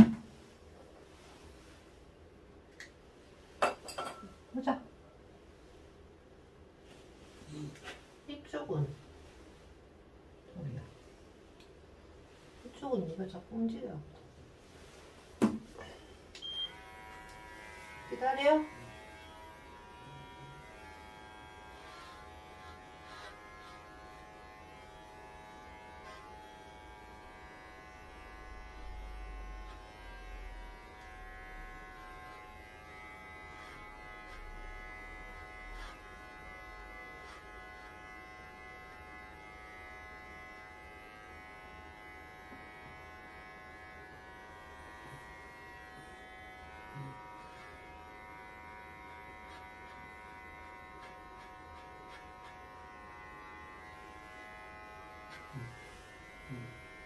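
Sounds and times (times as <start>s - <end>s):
electric pet clippers buzzing: 16.4s - 57.0s.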